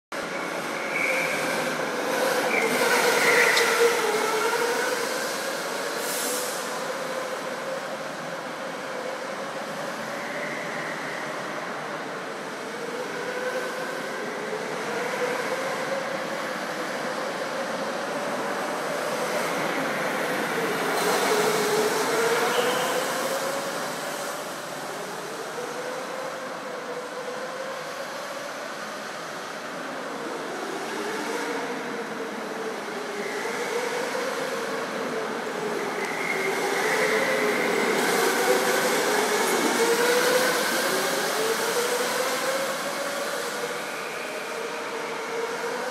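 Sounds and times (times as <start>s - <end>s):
go-kart motors whining: 0.2s - 5.9s, 17.4s - 26.7s, 29.8s - 45.9s.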